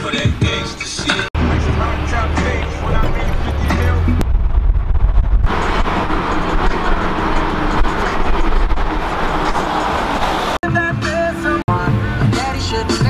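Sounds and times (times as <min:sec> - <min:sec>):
car road and wind noise: 0:00.5 - 0:10.6.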